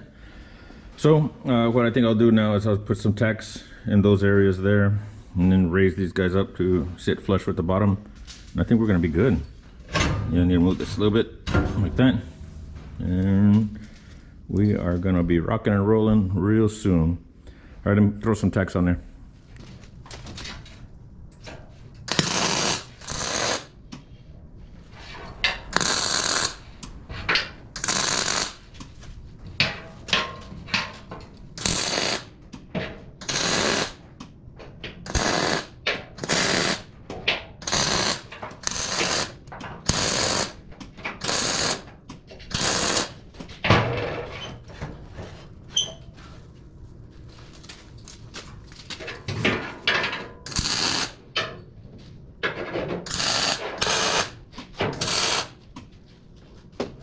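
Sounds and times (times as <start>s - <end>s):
welding arc crackling: 22.0s - 23.7s, 25.7s - 26.7s, 27.7s - 28.8s, 31.6s - 32.3s, 33.2s - 34.0s, 35.0s - 36.9s, 37.6s - 40.6s, 41.2s - 41.9s, 42.5s - 43.2s, 50.5s - 51.2s, 53.1s - 54.4s, 55.0s - 55.6s.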